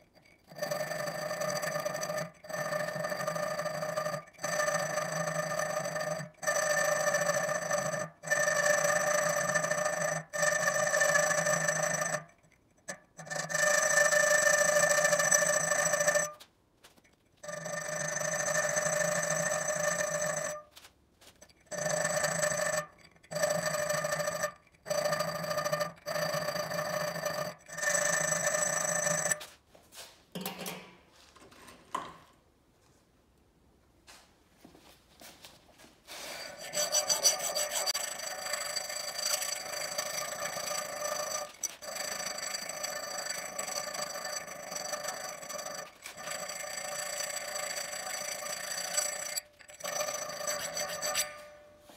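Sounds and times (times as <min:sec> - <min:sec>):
small power tool whining: 0:21.5 - 0:29.4, 0:36.3 - 0:51.9.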